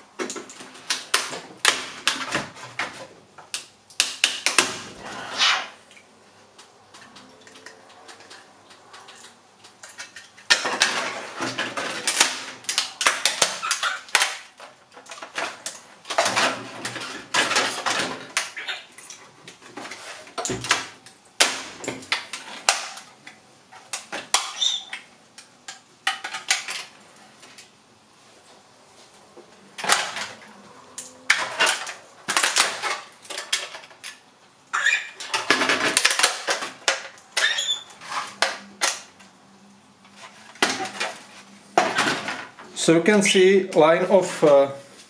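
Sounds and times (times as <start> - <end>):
brittle plastic cracking: 6.5 - 27.7, 29.8 - 34.3, 35.1 - 39.4.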